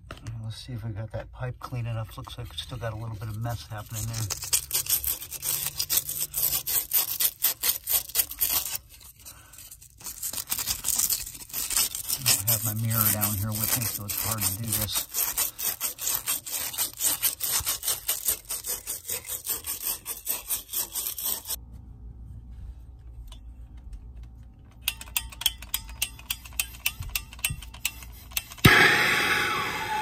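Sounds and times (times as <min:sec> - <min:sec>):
scouring pipe by hand: 0:02.2 - 0:21.6, 0:24.9 - 0:30.0
torch lighting with a pop: 0:28.6 - 0:30.0.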